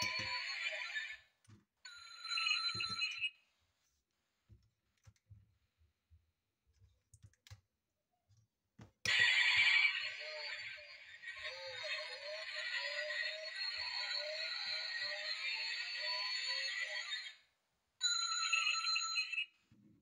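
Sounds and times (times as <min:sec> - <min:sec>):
toy car electronic sound effects: 0:00.0 - 0:01.2, 0:09.1 - 0:19.4.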